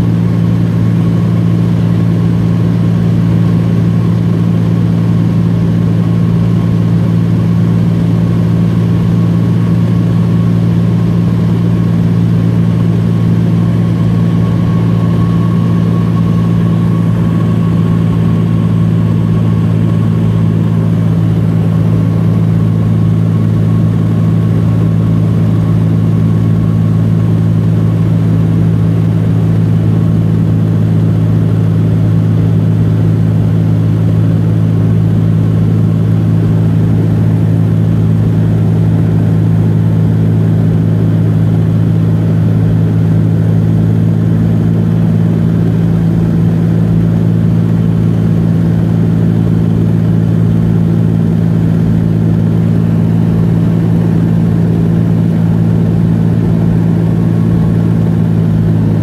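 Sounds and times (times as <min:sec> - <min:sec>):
faint steady whine: 0:00.0 - 0:59.0
small plane engine drone: 0:00.0 - 0:59.0.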